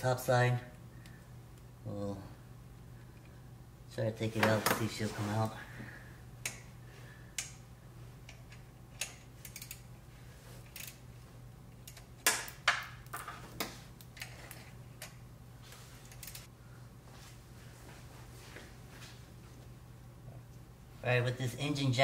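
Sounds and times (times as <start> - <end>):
steady low hum: 0.0 - 22.0
socket wrench clicking: 8.3 - 9.8.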